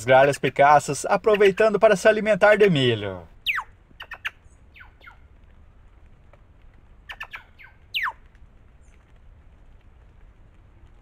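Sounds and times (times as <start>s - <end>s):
jays calling: 0.0s - 2.8s, 3.4s - 5.3s, 7.0s - 8.2s.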